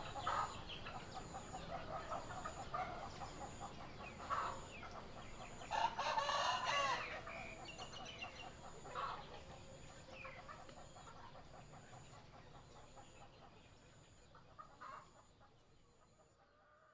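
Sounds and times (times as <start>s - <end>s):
chickens clucking: 0.0s - 16.9s
rooster crowing: 5.7s - 7.6s.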